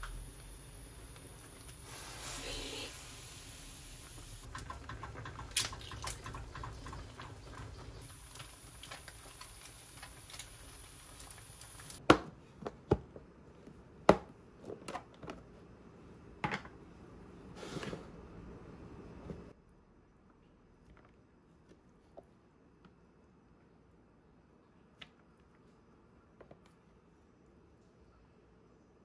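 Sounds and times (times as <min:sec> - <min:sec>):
soup boiling in a pot: 0:00.0 - 0:12.0.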